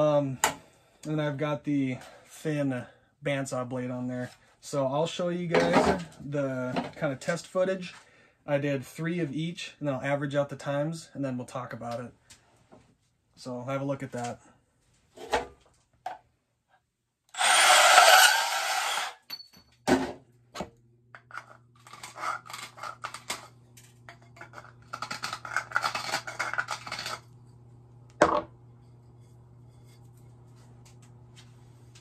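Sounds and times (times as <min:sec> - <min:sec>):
bandsaw cutting copper pipe: 0:17.3 - 0:19.3, 0:21.2 - 0:27.4
deburring tool scraping pipe: 0:17.3 - 0:19.3, 0:21.2 - 0:23.5, 0:24.1 - 0:27.6.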